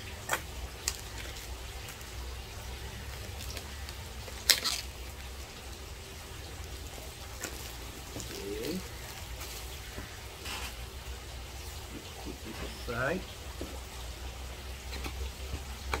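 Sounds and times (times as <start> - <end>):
plastic film tearing and crackling: 3.4 - 4.9.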